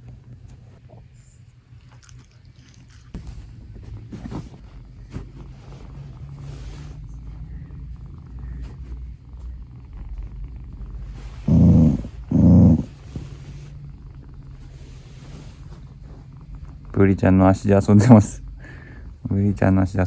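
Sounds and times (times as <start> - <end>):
cat purring: 0.0 - 20.0.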